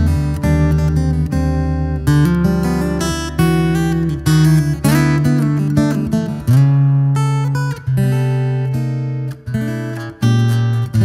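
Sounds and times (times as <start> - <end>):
fingerstyle acoustic guitar: 0.0 - 11.0.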